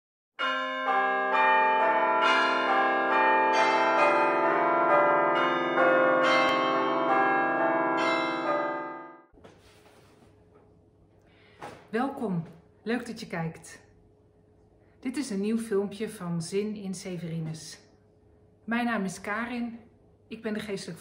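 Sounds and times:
bells ringing: 0.4s - 9.3s.

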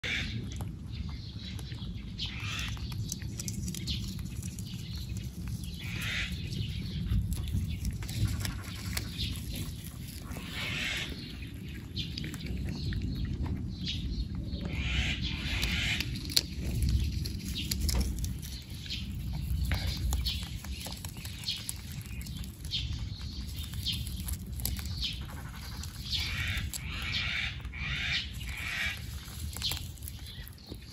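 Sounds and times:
rabbits nibbling leaves: 0.0s - 30.9s
steady low rumble: 0.0s - 30.9s
leaves and dry grass rustling: 2.4s - 12.6s, 14.6s - 30.9s.

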